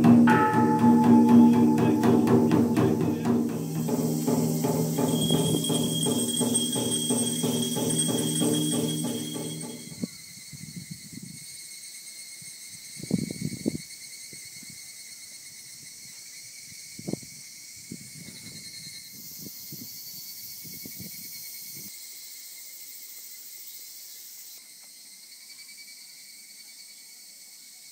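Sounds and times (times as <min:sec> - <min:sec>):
insects chirring: 0:00.0 - 0:15.8.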